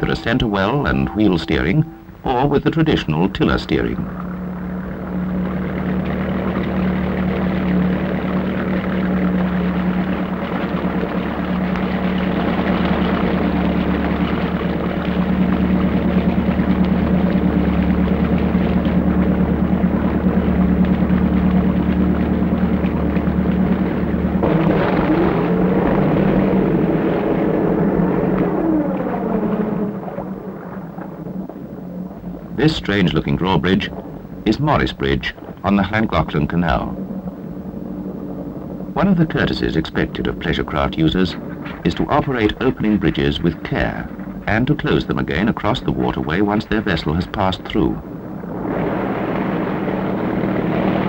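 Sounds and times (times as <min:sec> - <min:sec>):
sound gliding up and down in pitch: 0:00.0 - 0:11.2
boat engine droning: 0:00.0 - 0:51.0.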